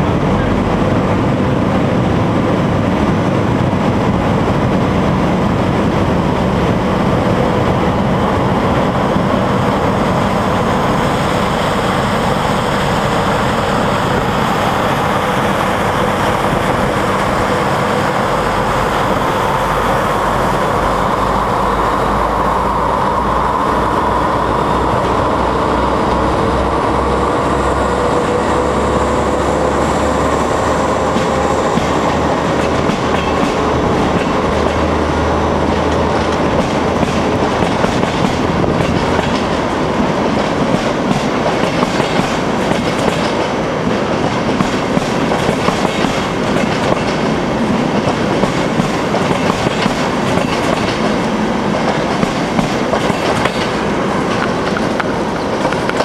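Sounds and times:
diesel locomotive engine hum and whine: 0.0 - 56.0
train wheel noise: 0.0 - 56.0
clickety-clack over rail joints: 30.1 - 56.0.

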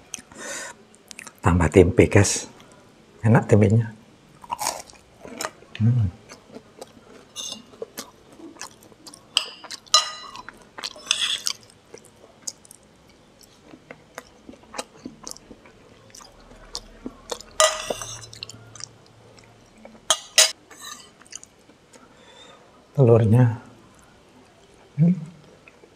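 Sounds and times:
chewing food: 4.4 - 20.2, 21.0 - 22.1, 23.9 - 25.9
spoon scraping plate: 7.3 - 7.7, 17.6 - 18.4, 20.1 - 21.2
spoon clinking on plate: 9.4 - 11.4, 17.6 - 18.3.

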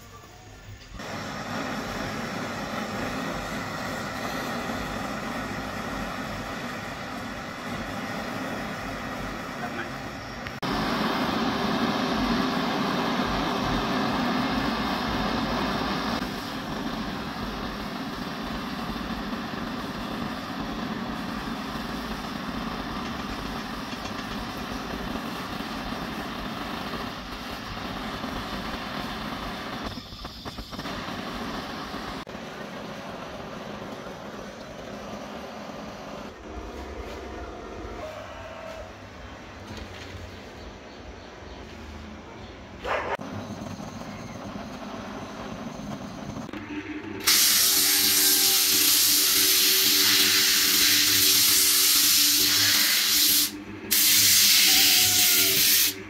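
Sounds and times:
butane torch hissing: 0.6 - 36.4, 47.2 - 56.0.

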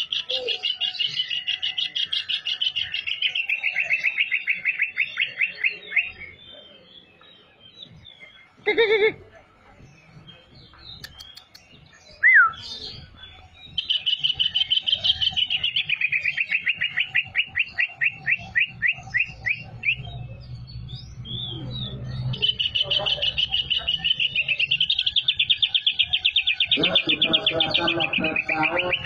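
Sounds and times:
bird singing trills: 0.0 - 29.0.

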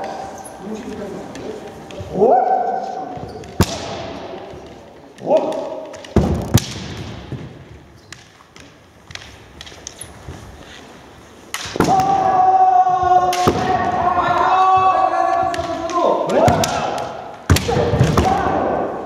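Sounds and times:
people shouting held shouts: 2.0 - 3.1, 11.8 - 19.0
bamboo swords tapping: 3.4 - 12.3, 13.2 - 18.6.

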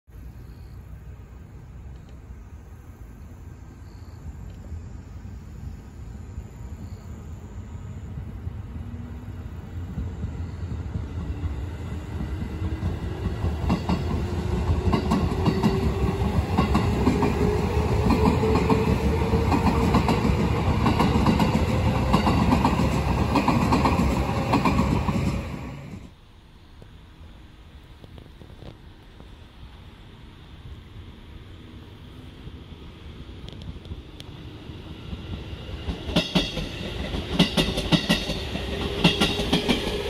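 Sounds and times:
electric train hum rising in pitch: 2.6 - 26.2, 29.6 - 40.0
train wheels clattering over rail joints: 10.0 - 25.5, 35.1 - 40.0.

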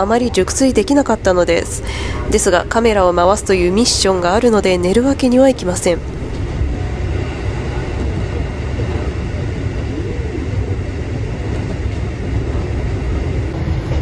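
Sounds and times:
electric train rumbling: 0.0 - 14.0.

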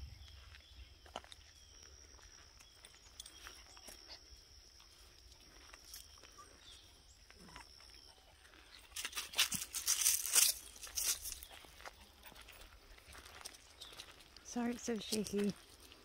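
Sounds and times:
dry leaves crunching underfoot: 8.6 - 16.0.

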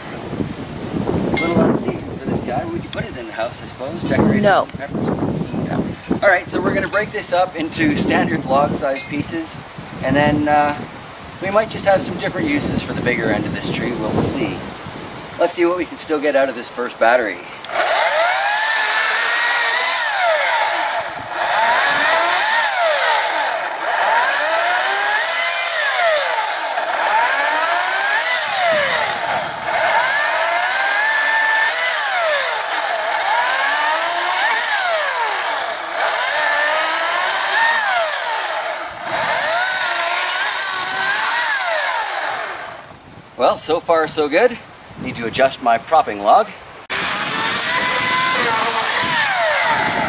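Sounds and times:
chainsaw cutting log: 17.6 - 43.0, 46.9 - 50.0.

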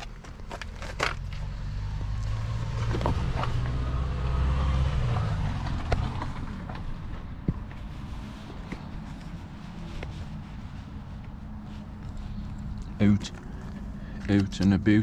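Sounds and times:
vehicle passing by: 1.2 - 8.4.

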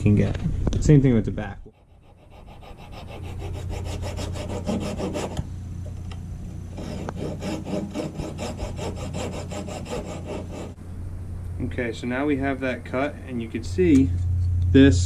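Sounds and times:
hacksaw cutting wood: 1.8 - 5.4, 6.8 - 10.8.

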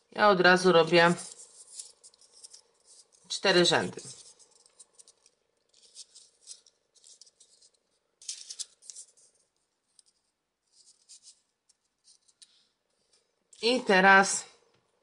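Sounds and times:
paper rustling and scraping: 0.7 - 13.2.

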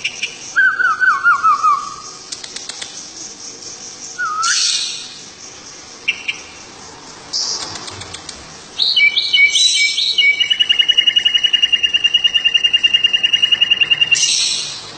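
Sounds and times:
bird whistled notes and trill: 0.0 - 2.2, 4.1 - 6.5, 8.8 - 14.9
songbird chirp: 0.0 - 14.9.

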